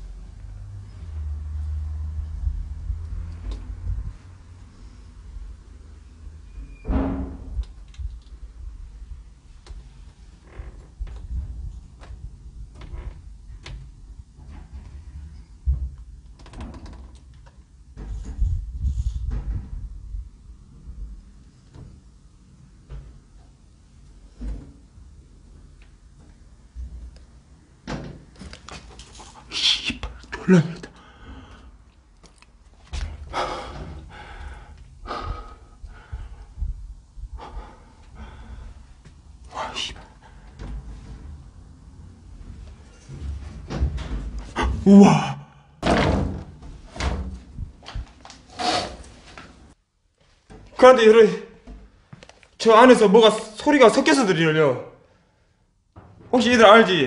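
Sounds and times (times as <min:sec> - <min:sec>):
door rumbling and rattling: 0:06.8 - 0:21.9, 0:40.0 - 0:45.0, 0:45.8 - 0:49.3
person breathing close: 0:30.8 - 0:31.9, 0:33.2 - 0:36.7, 0:37.3 - 0:40.5.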